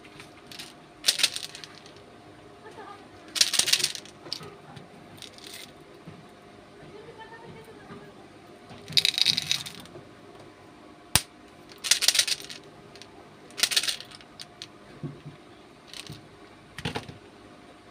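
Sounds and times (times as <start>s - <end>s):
candies rattling in plastic tube: 0.5s - 2.0s, 3.3s - 4.5s, 5.2s - 5.7s, 8.9s - 9.9s, 11.7s - 12.6s, 13.5s - 14.7s, 15.9s - 16.2s.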